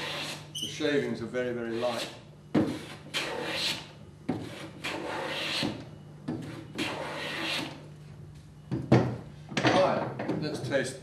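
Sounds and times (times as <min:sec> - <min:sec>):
bench plane strokes on wood: 0:00.0 - 0:00.4, 0:01.7 - 0:05.8, 0:06.4 - 0:07.8.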